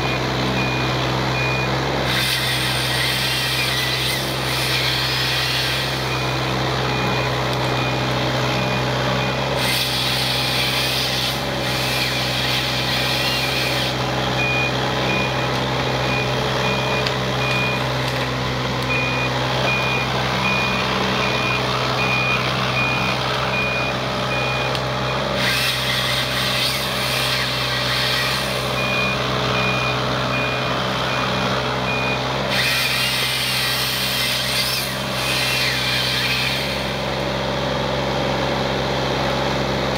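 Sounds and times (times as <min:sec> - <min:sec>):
travel alarm beeping: 0:00.0 - 0:01.8, 0:05.9 - 0:09.5, 0:14.4 - 0:18.0, 0:18.8 - 0:25.3, 0:28.6 - 0:32.3
excavator diesel engine running: 0:00.0 - 0:39.9.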